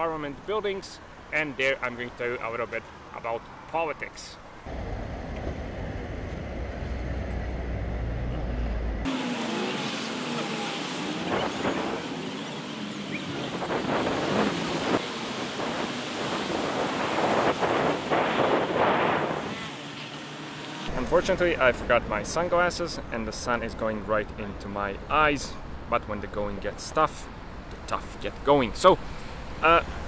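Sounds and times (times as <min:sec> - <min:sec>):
traffic going past: 0:00.9 - 0:23.4, 0:25.0 - 0:30.0
wind rumbling on microphone: 0:13.0 - 0:19.8.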